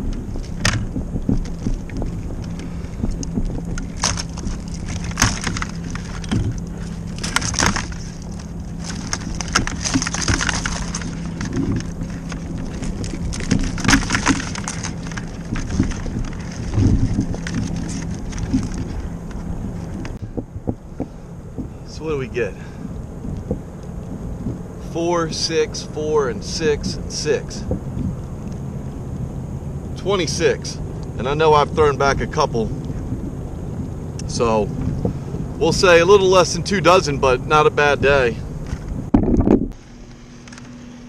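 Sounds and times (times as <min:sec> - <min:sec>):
crab shells clattering and scraping: 0:00.3 - 0:20.2.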